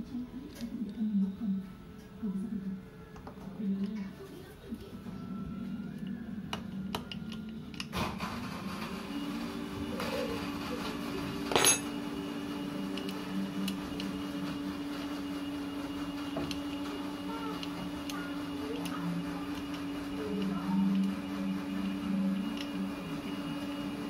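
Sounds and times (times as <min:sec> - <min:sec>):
metal tools clinking: 0:11.5 - 0:11.9.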